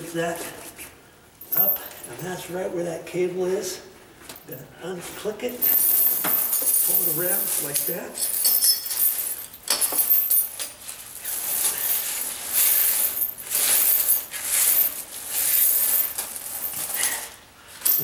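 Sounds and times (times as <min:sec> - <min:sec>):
tire chain links clinking: 0:01.4 - 0:02.4, 0:05.5 - 0:18.0.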